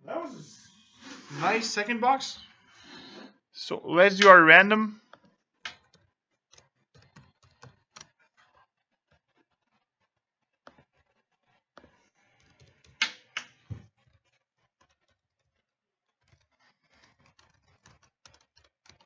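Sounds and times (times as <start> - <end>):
typing on keyboard: 5.7 - 8.1, 12.4 - 13.4, 16.3 - 19.0.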